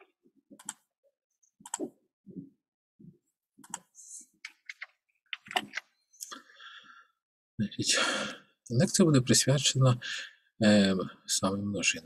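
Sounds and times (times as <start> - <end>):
keyboard and mouse clicks: 0.5 - 0.9, 1.6 - 2.0, 3.6 - 5.9.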